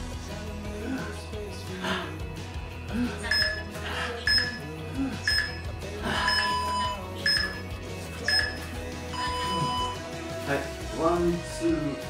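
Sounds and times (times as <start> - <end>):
upbeat electronic music: 3.1 - 12.0
short high electronic beeps: 3.3 - 3.7, 4.3 - 4.6, 5.3 - 5.6, 6.3 - 7.7, 8.3 - 10.0.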